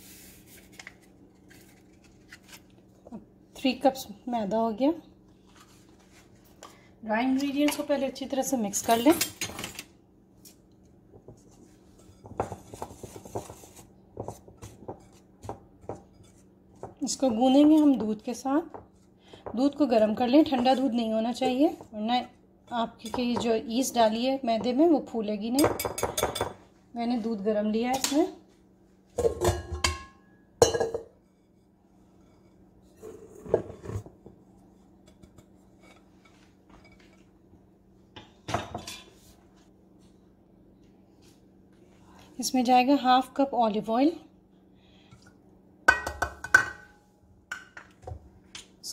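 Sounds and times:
whisk tapping and scraping glass bowl: 11.3s - 17.1s
kitchenware clattering against metal bowl: 25.6s - 26.6s, 29.2s - 31.2s, 45.9s - 48.0s.

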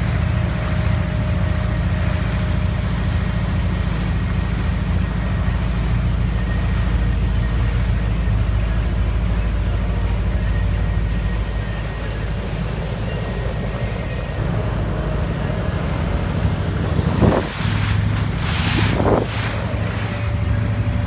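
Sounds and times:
motorboat engine running: 0.0s - 21.0s
water noise: 0.0s - 21.0s
wind noise: 16.7s - 20.7s.

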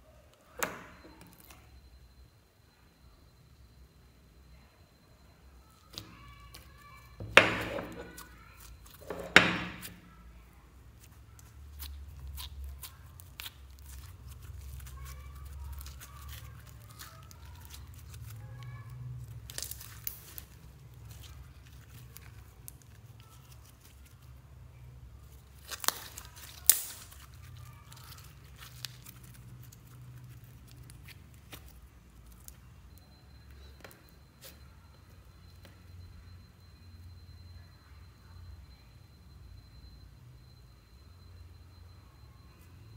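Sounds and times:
slime squeezing and crackling: 5.8s - 10.1s, 10.9s - 24.4s, 25.0s - 33.0s.

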